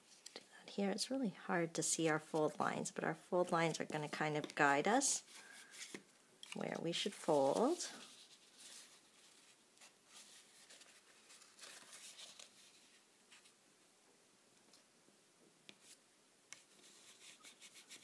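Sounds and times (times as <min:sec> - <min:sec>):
paper rubbing and rustling: 0:06.7 - 0:13.6, 0:16.6 - 0:18.0.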